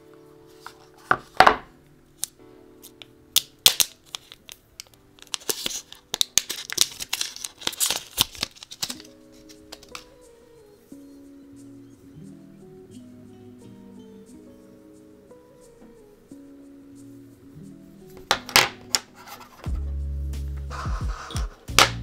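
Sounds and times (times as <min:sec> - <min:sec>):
soft background music: 0:00.0 - 0:22.0
packaging being torn and crinkled: 0:02.2 - 0:10.1.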